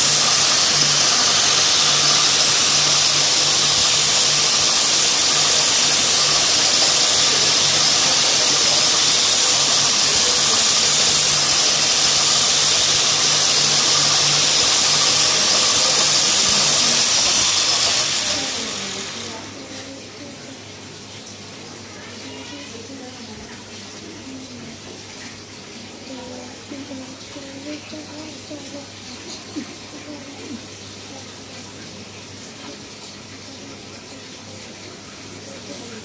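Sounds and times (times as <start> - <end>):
yarn twisting machine whirring: 0.0 - 20.2.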